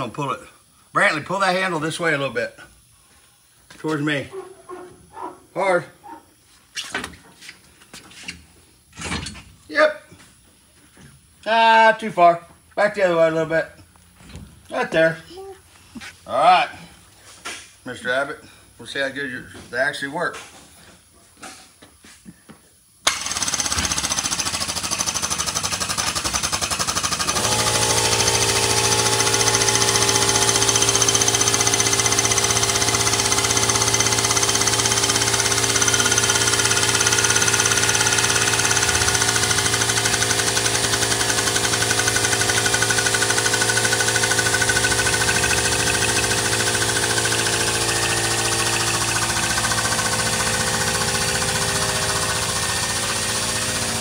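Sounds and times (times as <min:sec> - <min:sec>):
hydraulic pump rattling: 0:23.1 - 0:54.0.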